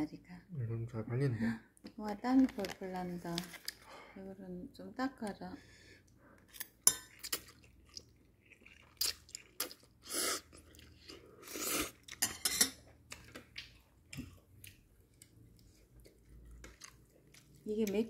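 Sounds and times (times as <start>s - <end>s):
person chewing noodles: 6.4s - 18.0s.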